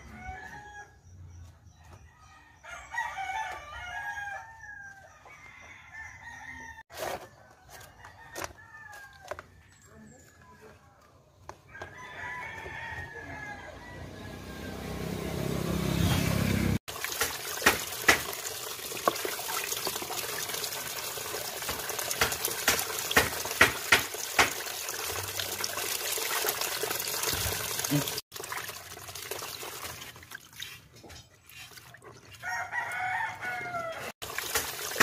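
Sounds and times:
rooster crowing: 0.0 - 1.1, 2.2 - 6.9, 11.7 - 15.8, 32.4 - 34.2
water splashing: 16.8 - 33.1, 34.2 - 35.0
tap water running into basin: 16.9 - 33.0, 34.2 - 35.0.

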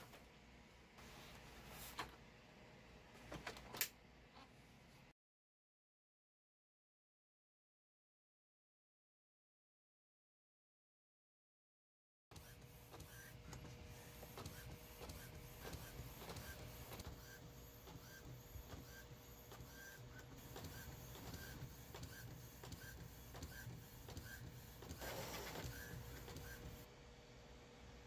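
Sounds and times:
printer carriage ticking: 12.3 - 26.8
printer whirr: 12.3 - 26.9
printer hum: 12.3 - 27.7.

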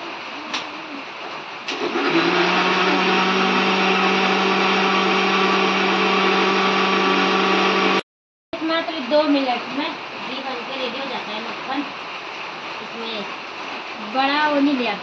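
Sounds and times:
mixer grinder motor humming: 1.7 - 8.0.

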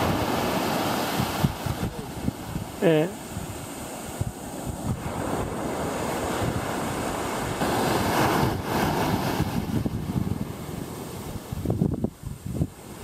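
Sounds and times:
ocean surf on beach: 0.0 - 13.0
wind buffeting microphone: 0.0 - 13.0.

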